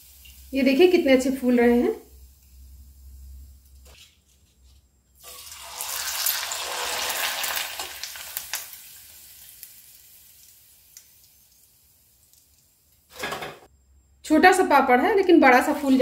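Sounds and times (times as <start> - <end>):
food sizzling in hot oil: 0.0 - 4.0, 5.2 - 13.5.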